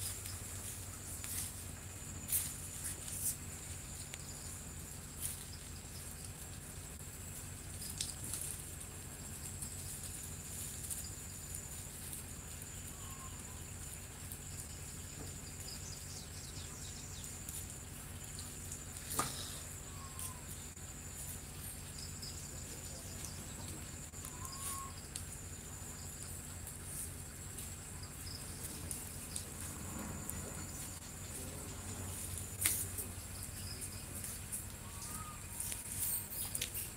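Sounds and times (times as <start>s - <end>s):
insect trill: 0.0s - 36.9s
bird chirps: 12.8s - 13.6s, 19.4s - 20.6s, 22.0s - 25.2s, 33.0s - 36.9s.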